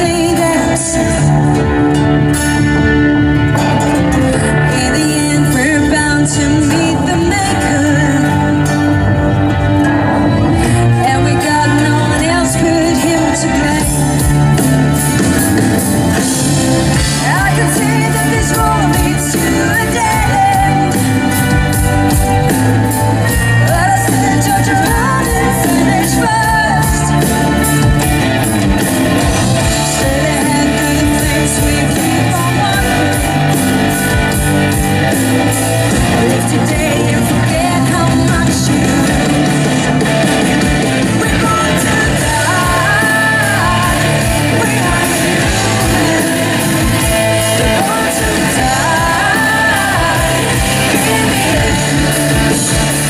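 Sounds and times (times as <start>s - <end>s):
woman singing into microphone: 0.0s - 2.0s, 4.2s - 14.6s, 16.9s - 22.3s, 23.2s - 28.1s, 29.3s - 34.2s, 35.9s - 39.7s, 41.0s - 53.0s
electric guitar: 0.0s - 53.0s
live metal band playing: 0.0s - 53.0s.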